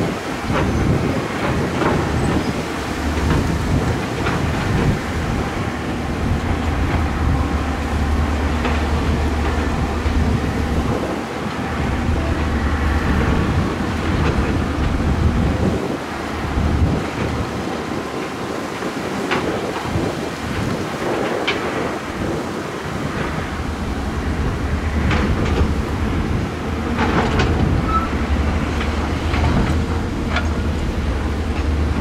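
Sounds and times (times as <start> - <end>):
diesel engine droning under load: 0.0 - 19.8.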